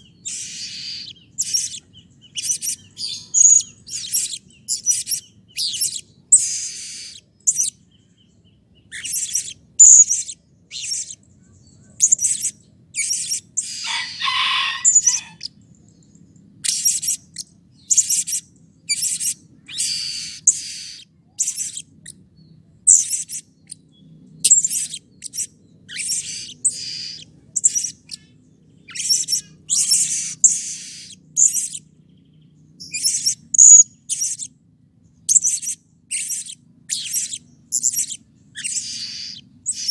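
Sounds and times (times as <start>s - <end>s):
parrot chirping: 0.0s - 7.8s, 8.8s - 11.2s, 12.0s - 15.6s, 16.6s - 22.2s, 22.9s - 23.8s, 24.4s - 31.8s, 32.8s - 34.5s, 35.3s - 39.9s
low rough parrot call: 13.6s - 15.4s.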